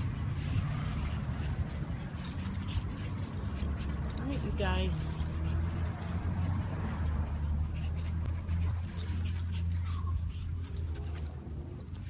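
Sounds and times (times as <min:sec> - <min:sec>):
small dog whimpering: 0:09.6 - 0:10.5.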